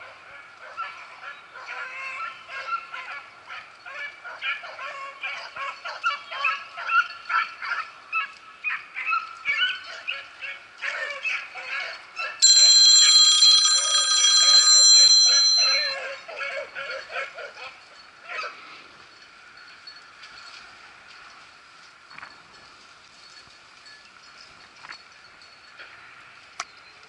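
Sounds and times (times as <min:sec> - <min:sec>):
high ringing tone: 0:12.4 - 0:16.0.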